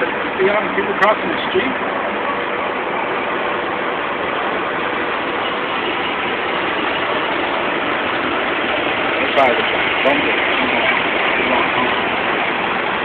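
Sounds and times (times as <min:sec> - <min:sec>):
traffic and engine hum inside car: 0:00.0 - 0:13.0.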